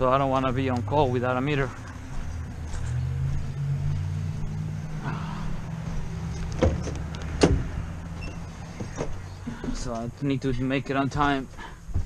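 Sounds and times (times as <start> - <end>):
vehicle engine idling: 0.0 - 10.2
van door unlatching clacks: 6.4 - 7.7.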